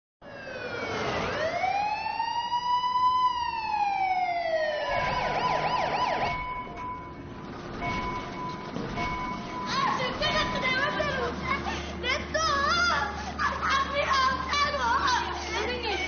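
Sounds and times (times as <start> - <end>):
ambulance siren: 0.2 - 10.7.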